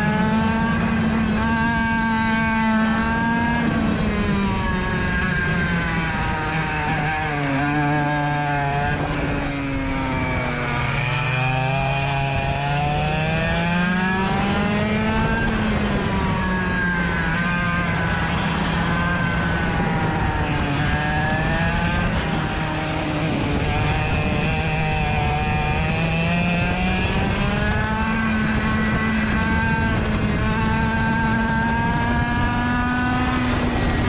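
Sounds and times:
kart engine revving: 0.0 - 34.0.

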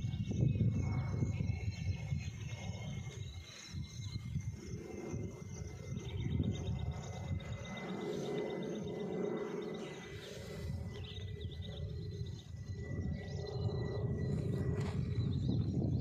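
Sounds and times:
rapid bird chirping: 0.0 - 16.0
wind rumbling on microphone: 0.0 - 16.0
high thin whine: 0.1 - 16.0.

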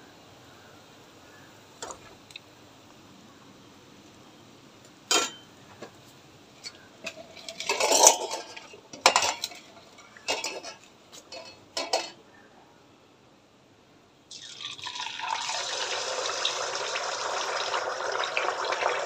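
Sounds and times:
steel ladle scraping steel bowl: 7.0 - 12.1.

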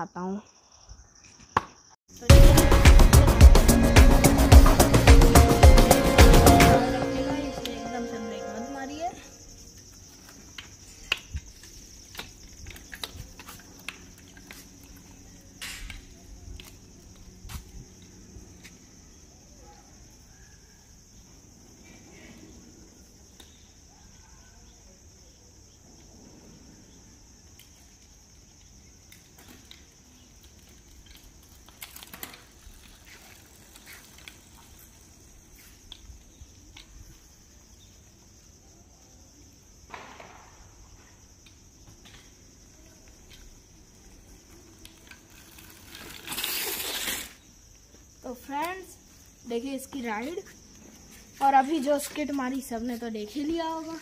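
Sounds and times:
steady high hiss: 2.1 - 18.9
bicycle tyre skidding on concrete: 29.2 - 37.5, 43.1 - 48.9.

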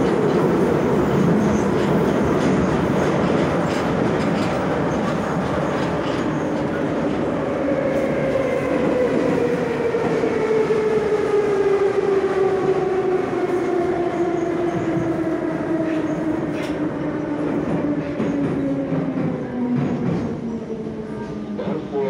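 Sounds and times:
wheels rumbling on rails: 0.0 - 7.4.

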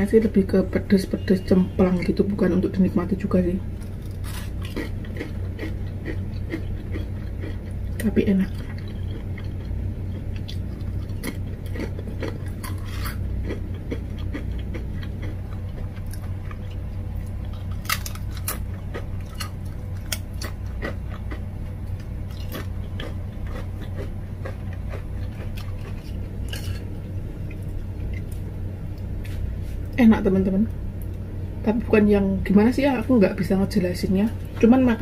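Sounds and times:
steady low hum: 0.0 - 35.0
crunching and chewing chips: 3.7 - 29.9.

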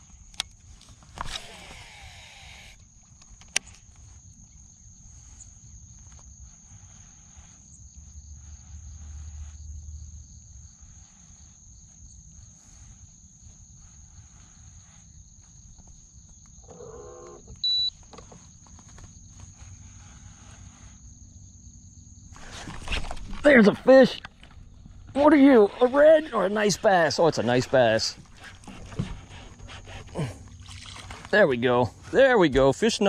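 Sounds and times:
high insect chorus: 0.0 - 33.0
fishing reel spool whirring: 1.2 - 2.8.

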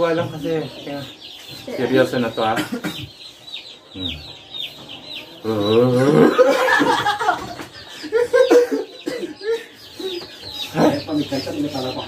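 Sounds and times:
faint chicken clucking: 0.0 - 12.0
people laughing: 5.5 - 10.2.

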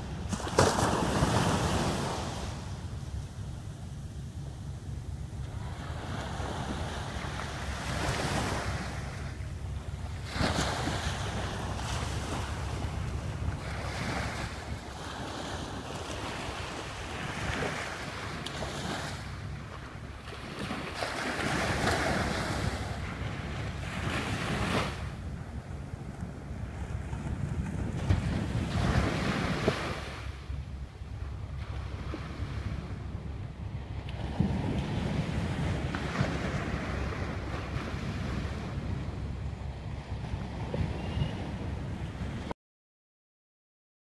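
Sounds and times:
small waves washing on shore: 0.0 - 42.5
wind rumbling on microphone: 0.0 - 42.5.

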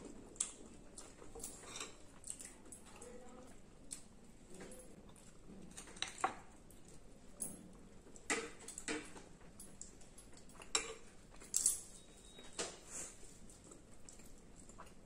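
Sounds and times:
quiet eating sounds: 0.0 - 15.0
cutlery clinking on plates: 1.3 - 2.0, 10.4 - 12.8.

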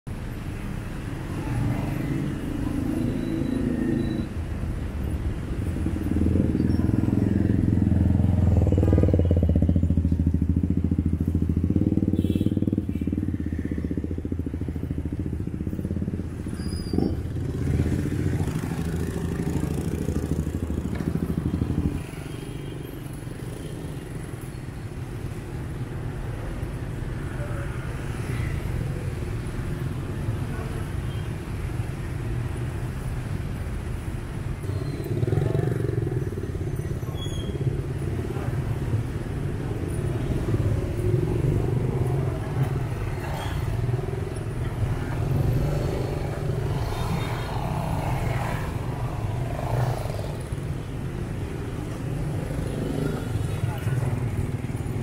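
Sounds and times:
street traffic noise: 0.0 - 55.0
motorbike and scooter engines: 0.1 - 55.0.

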